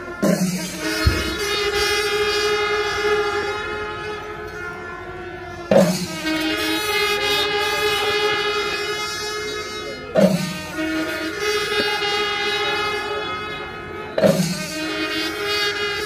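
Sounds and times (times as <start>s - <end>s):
wind instruments holding notes: 0.0s - 16.0s
loud drum strikes: 0.2s - 2.3s, 5.7s - 6.4s, 10.2s - 10.8s, 14.2s - 15.0s.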